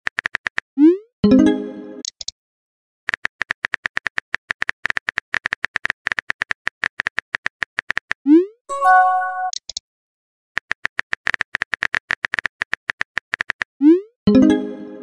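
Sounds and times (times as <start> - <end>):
message chime: 8.7 - 9.6.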